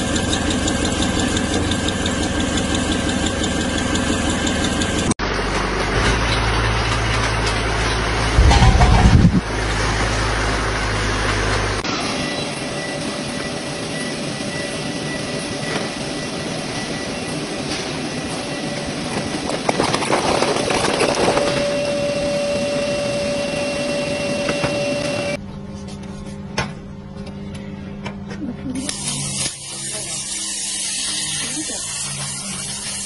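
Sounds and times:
factory machinery hum: 0.0 - 19.8, 21.4 - 33.0
low machine whine: 8.4 - 19.4, 21.3 - 28.8.

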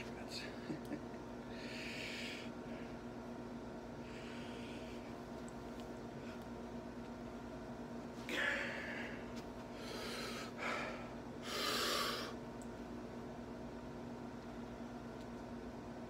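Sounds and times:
man breathing forcefully: 8.3 - 12.4.

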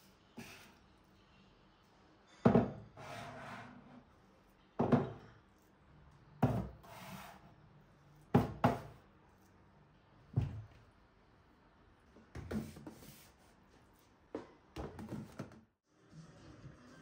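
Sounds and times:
kitchen items knocking on hard surface: 2.4 - 2.8, 4.8 - 5.2
short rubbing scrape: 3.0 - 4.0.

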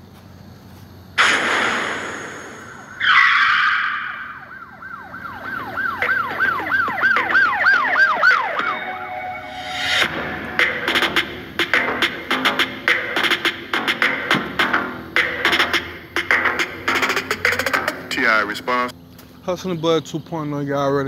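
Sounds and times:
whoosh: 1.2 - 3.1
quick siren-like chirps: 2.3 - 10.8.

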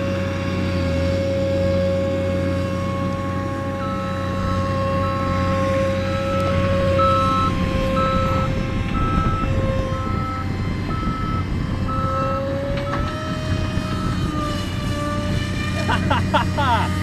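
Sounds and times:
model plane motor whining: 0.9 - 17.0.

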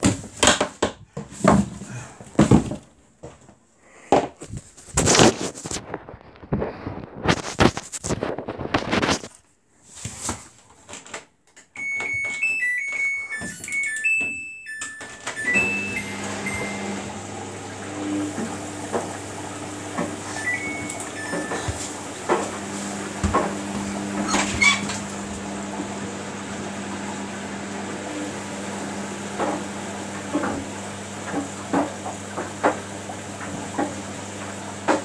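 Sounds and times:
knocks and clicks: 11.8 - 15.8
button beeps: 11.8 - 17.0, 20.3 - 21.8
washing machine power-on tune: 11.8 - 35.0.

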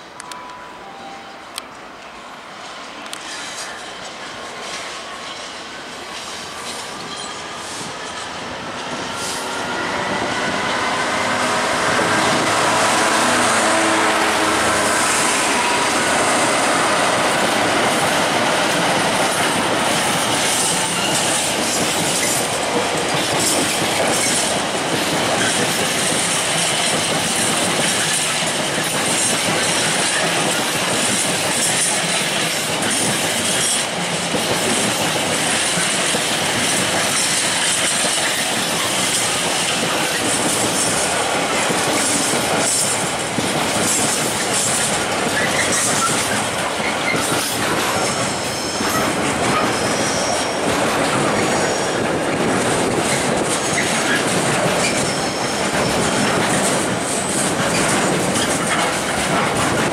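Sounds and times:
diesel locomotive engine: 0.0 - 59.9
train wheels clattering over rail joints: 14.9 - 59.9.

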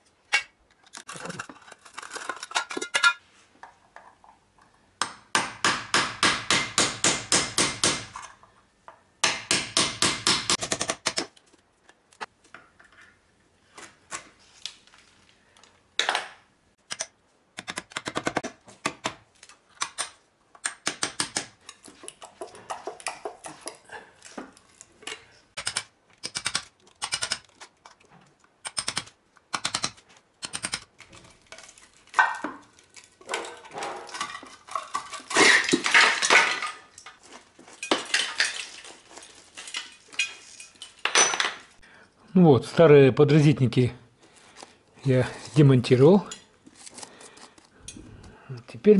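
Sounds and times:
hammer striking chisel into wall: 5.0 - 8.1, 9.2 - 11.2.

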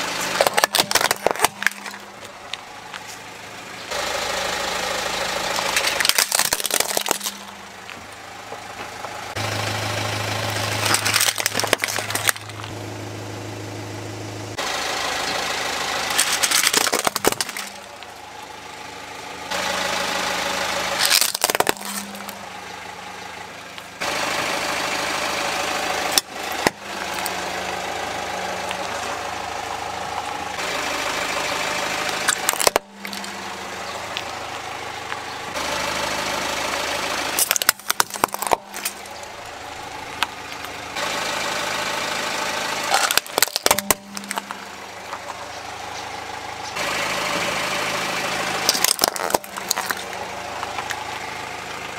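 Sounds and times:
car engine idling: 0.0 - 51.9
plastic toys cracking under tyre: 0.1 - 3.1, 5.5 - 8.1, 10.4 - 12.7, 16.1 - 18.1, 20.9 - 22.5, 26.1 - 27.4, 32.0 - 33.4, 37.4 - 40.8, 42.8 - 45.5, 48.6 - 51.1.

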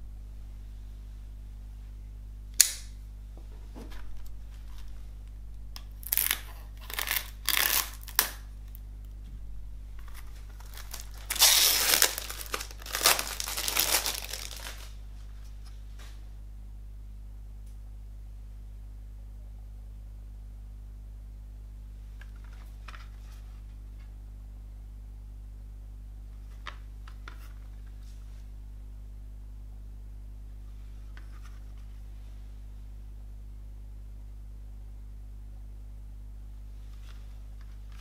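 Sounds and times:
sharp click: 2.6 - 3.0
cellophane tearing and crinkling: 5.8 - 8.8, 10.0 - 15.0.

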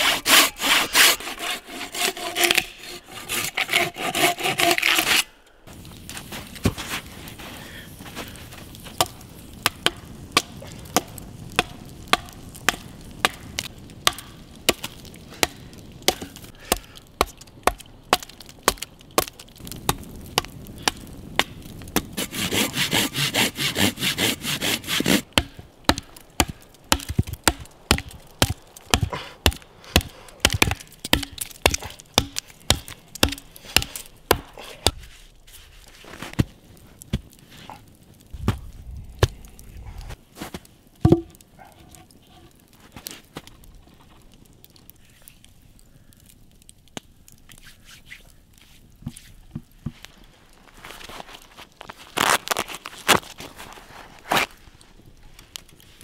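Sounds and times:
wood being sawn by hand: 0.0 - 5.3, 22.2 - 25.2.

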